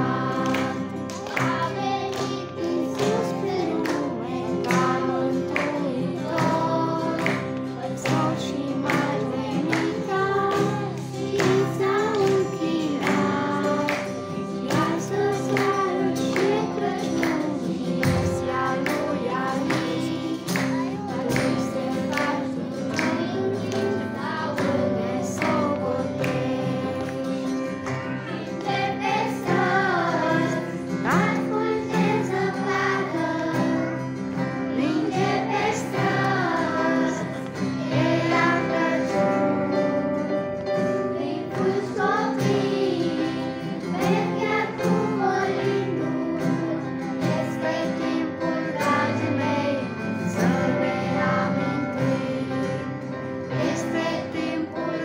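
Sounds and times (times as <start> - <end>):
children's choir singing: 0.0 - 55.0
instrumental accompaniment: 0.0 - 55.0.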